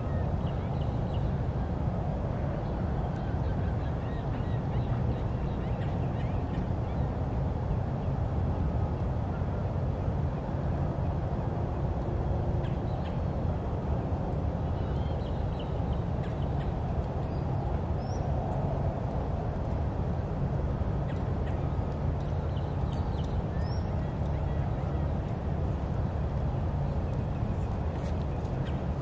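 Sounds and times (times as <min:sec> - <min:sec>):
faint bird calls and chirps: 0:02.5 - 0:07.2.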